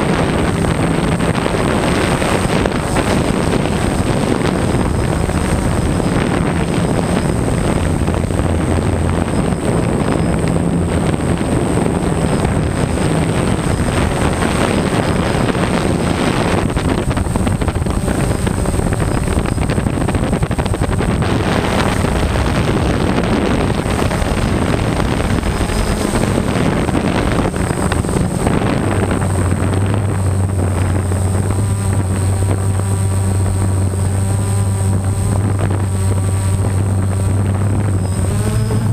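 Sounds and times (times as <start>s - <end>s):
drone motors and propellers: 0.0s - 38.9s
wind rush on microphone: 0.0s - 38.9s.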